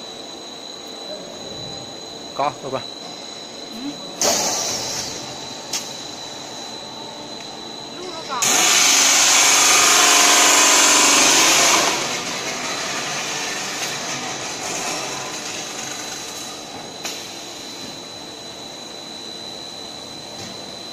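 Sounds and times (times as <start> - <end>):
high machine whine: 0.0 - 20.9
loud harsh machine noise: 0.0 - 20.9
machinery running: 7.7 - 16.0.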